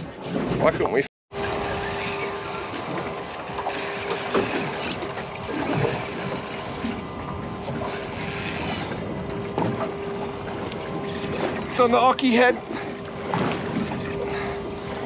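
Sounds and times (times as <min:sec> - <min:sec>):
steady hum: 0:01.3 - 0:15.0
fishing reel gears ticking: 0:01.4 - 0:07.0, 0:07.6 - 0:09.2, 0:10.2 - 0:15.0.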